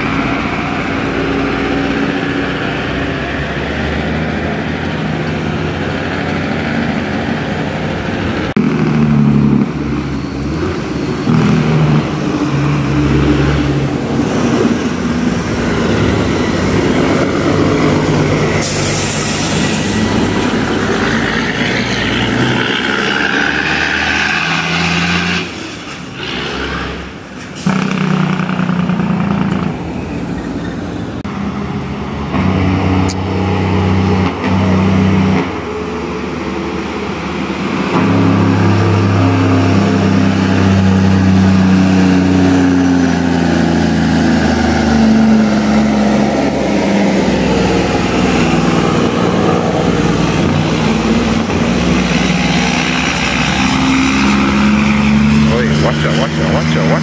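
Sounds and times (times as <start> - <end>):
truck engine brakes: 14.5 - 31.2
air brake hiss: 18.6 - 20.0.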